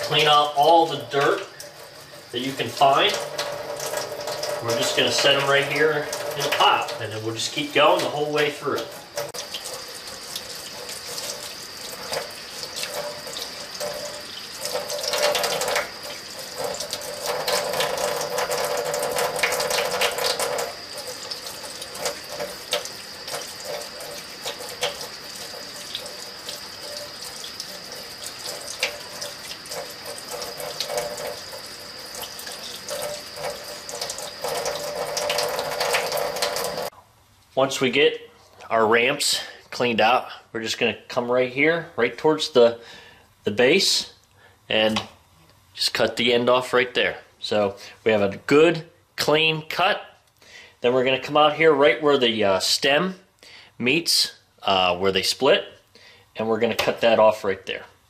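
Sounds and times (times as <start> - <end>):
tap water running into sink: 0.0 - 36.9.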